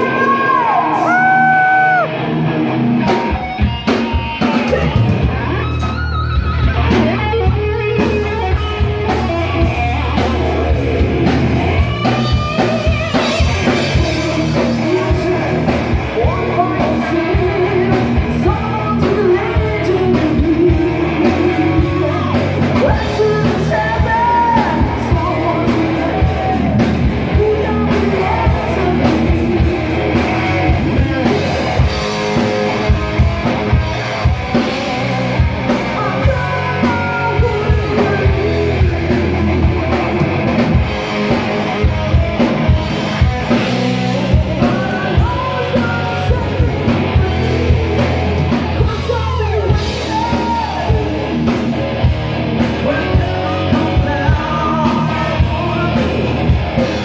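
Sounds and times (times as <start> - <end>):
drum kit: 0.0 - 57.0
electric guitar: 0.0 - 57.0
woman singing: 16.2 - 29.7, 36.0 - 38.9, 52.8 - 56.1.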